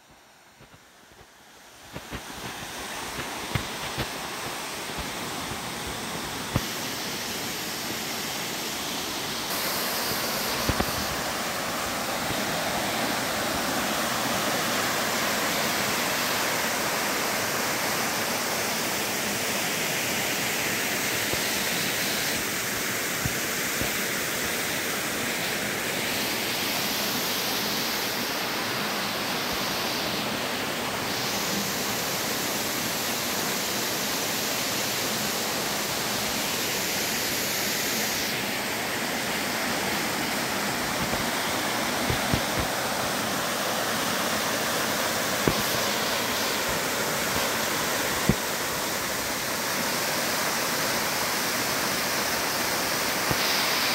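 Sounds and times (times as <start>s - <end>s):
small waterfall rushing: 0.0s - 53.9s
stream over rocks: 0.0s - 53.9s.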